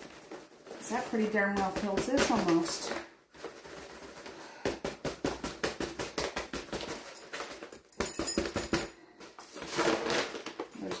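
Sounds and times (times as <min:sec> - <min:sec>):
paper bag crackling: 0:00.0 - 0:04.6.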